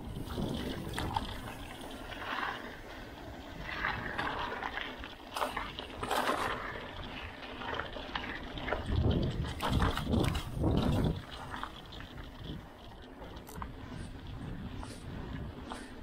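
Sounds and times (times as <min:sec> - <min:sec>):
tyre and wind rushing: 0:00.0 - 0:04.7, 0:08.6 - 0:12.7
bike clicks and knocks: 0:03.7 - 0:16.0.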